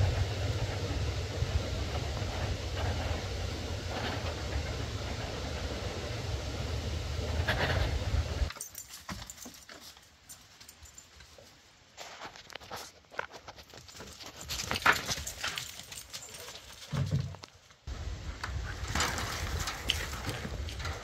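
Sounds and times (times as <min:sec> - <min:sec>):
faint rustles and clicks: 0:07.3 - 0:21.0.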